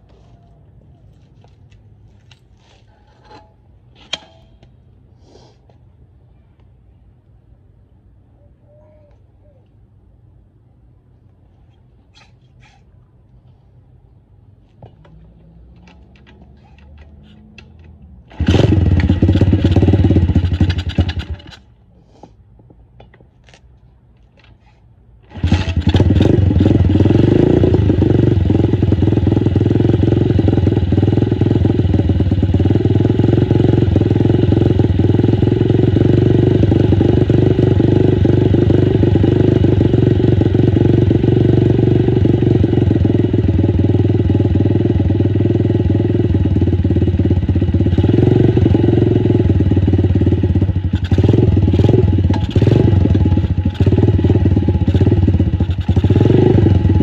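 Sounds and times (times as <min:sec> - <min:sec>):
dirt bike engine starting and idling: 0:14.9 - 0:21.8, 0:25.2 - 0:57.0.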